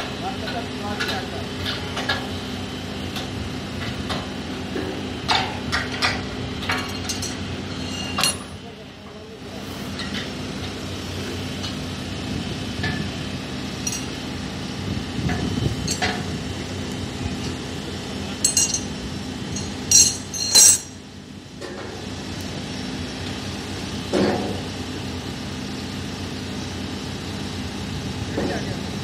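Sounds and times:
steady low hum: 0.0 - 29.0
metal clanks and clinks: 5.3 - 8.6, 13.8 - 14.2, 15.3 - 16.3, 18.4 - 21.0.

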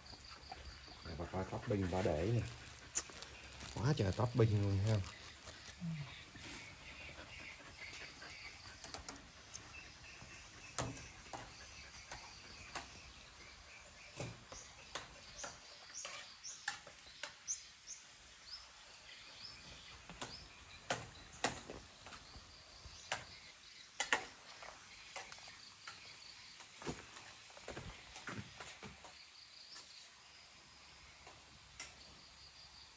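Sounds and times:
birds chirping: 0.0 - 32.9
faint insect drone: 22.0 - 32.9.

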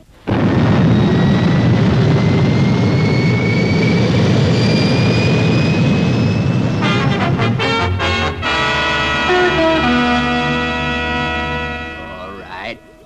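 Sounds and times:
rocket engine roar: 0.0 - 12.9
thin whistle rising in pitch: 0.9 - 7.3.

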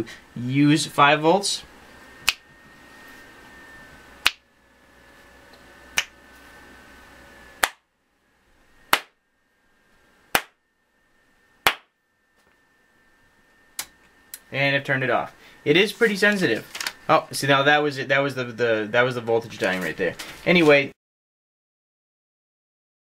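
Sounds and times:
finger snaps: 2.2 - 2.4, 4.2 - 4.4, 6.0 - 6.2.

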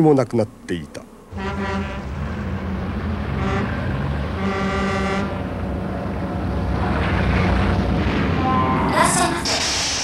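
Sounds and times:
heavy truck engine rumbling: 0.0 - 10.0
truck horn: 1.3 - 5.7.

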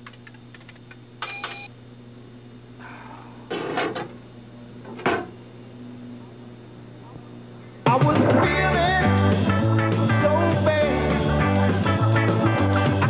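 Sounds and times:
electronic computer beep: 1.2 - 1.7.

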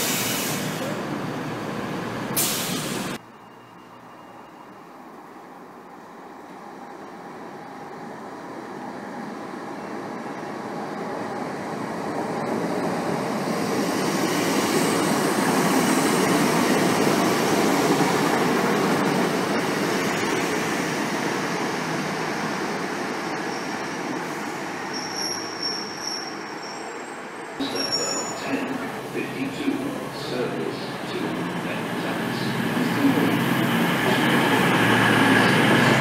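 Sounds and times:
diesel train engine and wheels: 0.0 - 36.0
high-pitched train squeal: 24.8 - 28.7.

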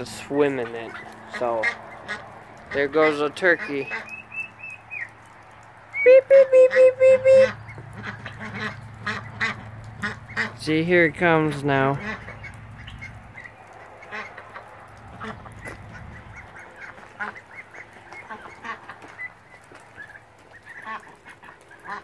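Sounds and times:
ducks quacking: 0.0 - 22.0.

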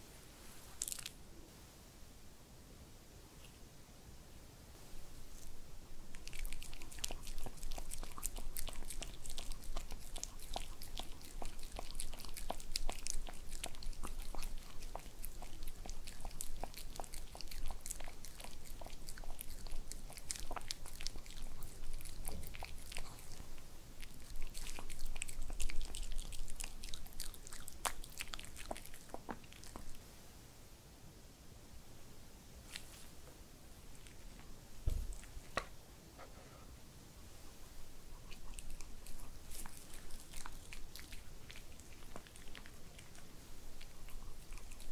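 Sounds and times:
dog chewing: 5.2 - 30.0, 38.0 - 44.9
dog licking lips: 5.3 - 30.0, 38.1 - 44.9.

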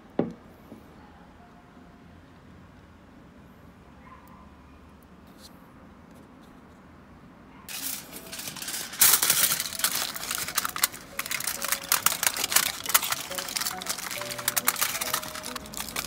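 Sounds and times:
foil crinkling: 7.7 - 16.0.

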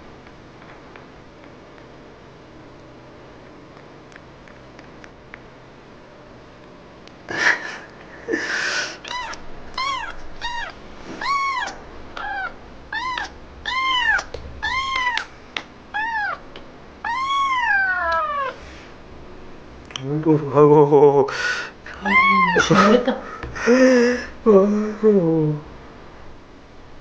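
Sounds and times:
kitten meowing: 9.0 - 15.3, 15.9 - 18.6, 22.0 - 23.0.

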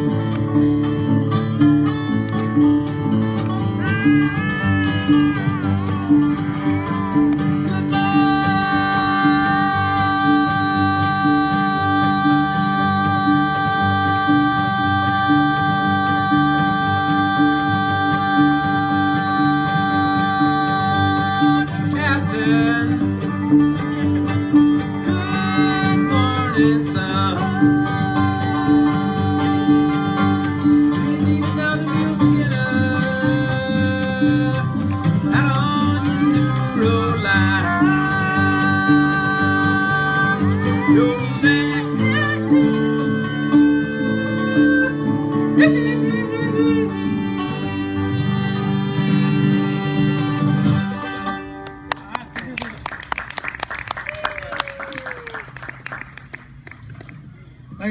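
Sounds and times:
upright bass: 0.0 - 53.3
bluegrass band playing: 0.0 - 53.9
acoustic guitars: 0.0 - 57.9
person singing long held notes: 3.8 - 23.2, 24.9 - 50.0.

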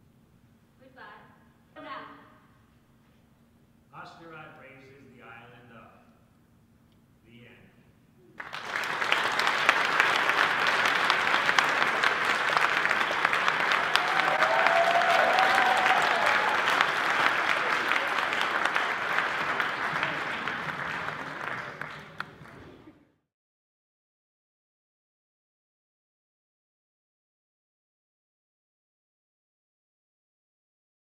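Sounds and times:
audience applauding: 8.4 - 22.9.

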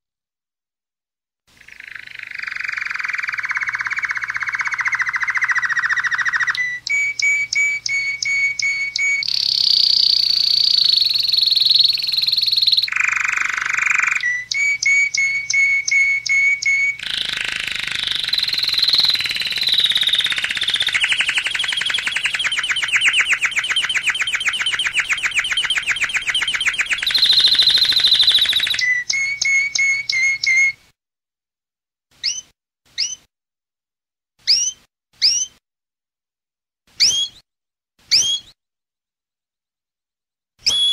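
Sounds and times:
canary singing: 1.6 - 30.8, 32.2 - 33.3, 34.5 - 35.6, 37.0 - 37.4, 38.1 - 38.6, 40.6 - 40.9.

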